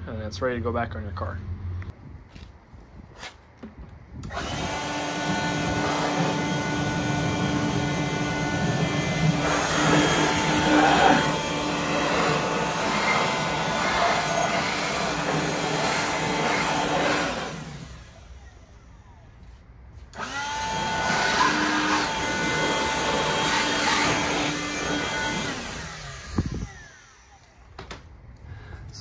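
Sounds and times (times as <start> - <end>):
air blower running: 4.2 - 19.0, 20.1 - 27.6.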